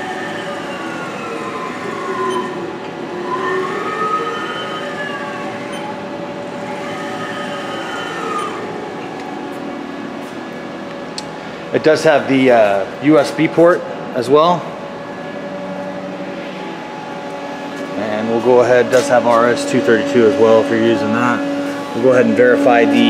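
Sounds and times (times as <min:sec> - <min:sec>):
servo drive whining: 0:00.0 - 0:11.1, 0:15.0 - 0:23.0
steady machine hum: 0:00.0 - 0:23.0.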